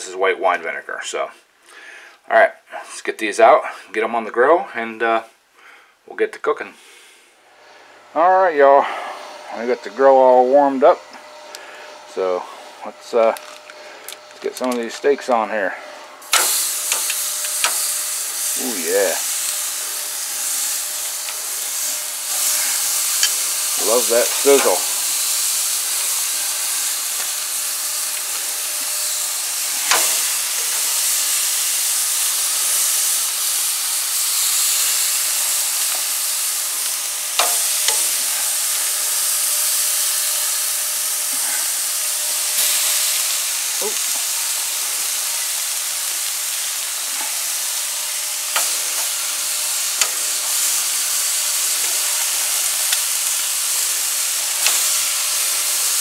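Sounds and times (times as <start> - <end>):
meat sizzling on a grill: 16.2 - 56.0
tongs clicking and knocking: 37.4 - 38.1.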